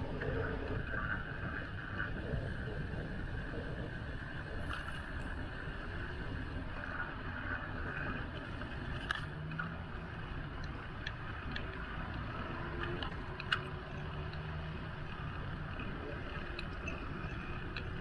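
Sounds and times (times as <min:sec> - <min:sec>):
wind and tyres rumbling on road: 0:00.0 - 0:18.0
bicycle clicks and rattles: 0:08.3 - 0:18.0.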